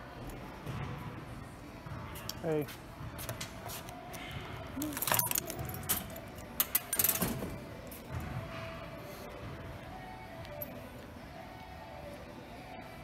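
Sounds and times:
jingling and clicking: 4.8 - 7.3.

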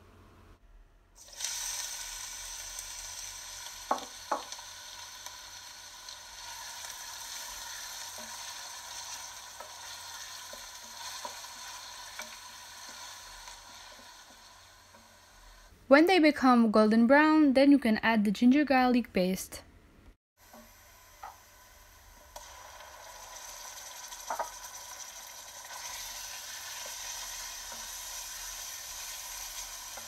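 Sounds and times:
onions sizzling in hot oil: 1.2 - 15.7, 20.4 - 30.0
wooden spoon stirring onions: 3.7 - 15.2, 24.1 - 30.0.

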